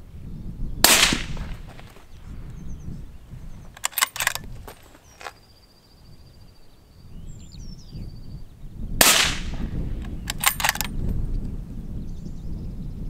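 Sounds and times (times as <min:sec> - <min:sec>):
rifle shot with echo: 0:00.8 - 0:02.0, 0:09.0 - 0:10.9
rifle bolt clicking: 0:03.8 - 0:05.4, 0:10.0 - 0:11.0.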